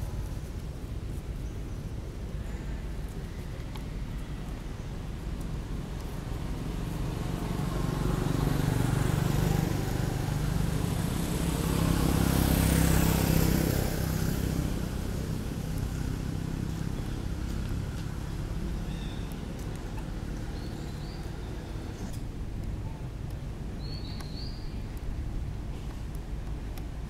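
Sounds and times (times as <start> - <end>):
vehicle engine passing by: 6.4 - 22.1.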